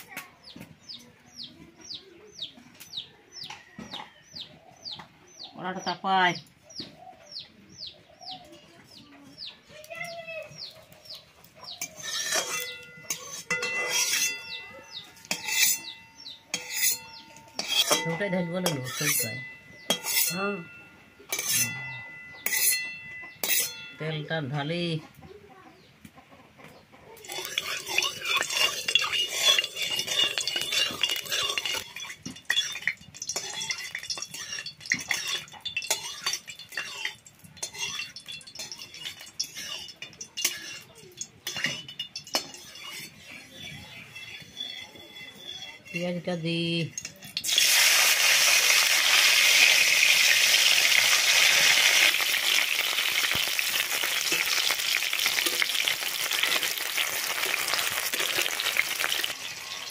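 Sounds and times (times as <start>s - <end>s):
chicks peeping: 0.4s - 12.0s, 23.2s - 23.5s
chickens clucking: 0.5s - 47.4s
metal spatula scraping a pan: 11.5s - 24.6s, 27.2s - 59.9s
pan ringing: 12.4s - 24.5s, 27.3s - 42.6s.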